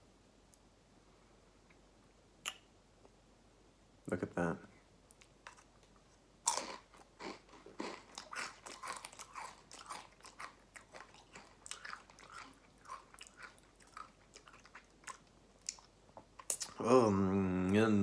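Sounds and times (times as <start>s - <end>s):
chip crunching: 5.2s - 16.8s
person chewing crunchy chip: 6.4s - 16.8s.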